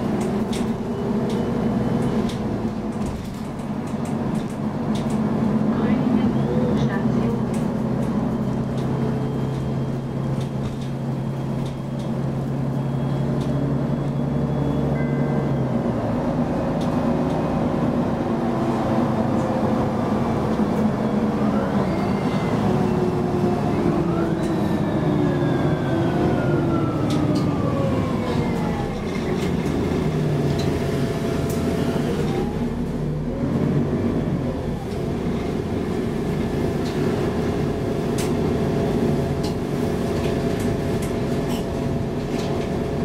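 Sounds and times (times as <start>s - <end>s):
bus diesel engine humming: 0.0s - 43.0s.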